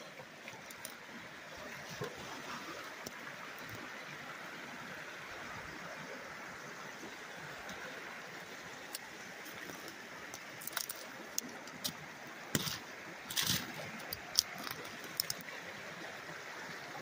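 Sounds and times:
river rushing over rocks: 0:00.0 - 0:17.0
close clicks and rustles: 0:09.7 - 0:12.0, 0:12.6 - 0:15.5.

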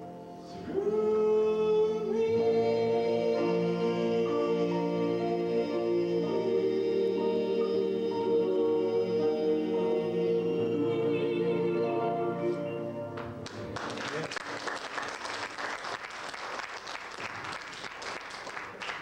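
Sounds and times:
male vocal group singing: 0:00.5 - 0:12.8
audience applauding: 0:13.2 - 0:19.0.

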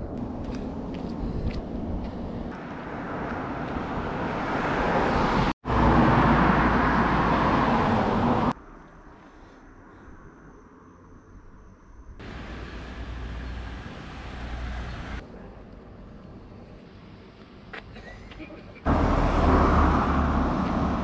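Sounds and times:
vehicle passing close by: 0:02.6 - 0:08.6, 0:18.9 - 0:21.0.

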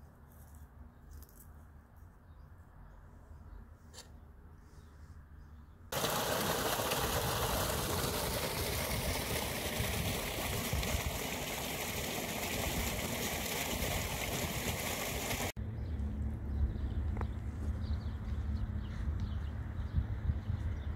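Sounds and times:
running water rushing: 0:06.0 - 0:15.6.

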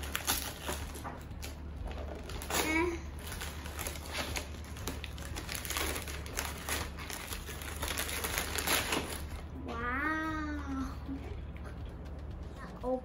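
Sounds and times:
gift-wrap paper crinkling and tearing: 0:00.0 - 0:09.5.

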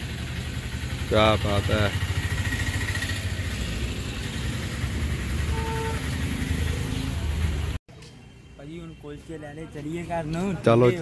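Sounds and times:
vehicle engine running: 0:00.0 - 0:07.8.

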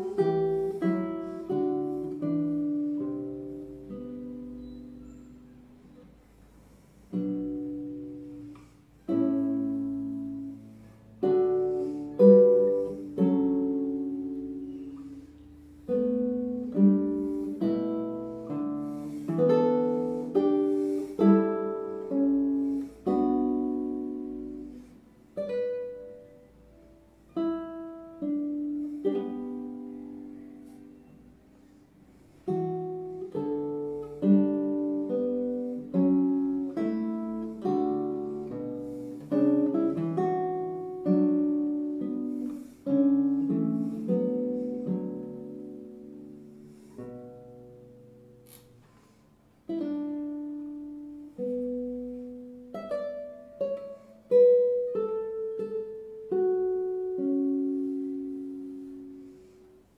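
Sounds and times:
classical guitar fingerstyle: 0:00.0 - 0:59.9.

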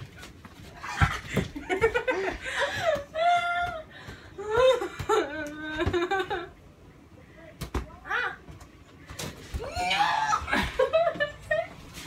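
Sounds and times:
people laughing and squealing: 0:09.7 - 0:11.8.

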